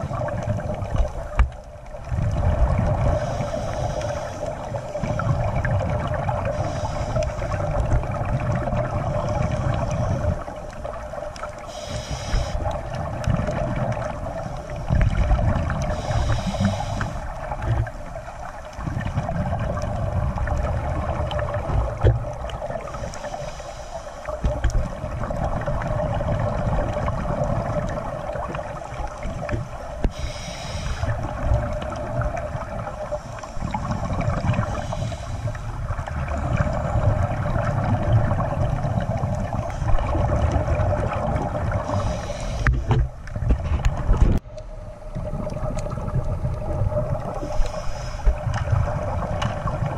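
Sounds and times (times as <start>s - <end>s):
rumbling bubbles: 0.0s - 23.5s, 24.2s - 49.9s
regulator hissing on inhale: 3.0s - 5.5s, 6.4s - 7.8s, 9.2s - 10.8s, 11.5s - 13.0s, 15.8s - 18.7s, 22.7s - 25.0s, 29.1s - 37.6s, 41.7s - 43.0s, 47.3s - 49.0s.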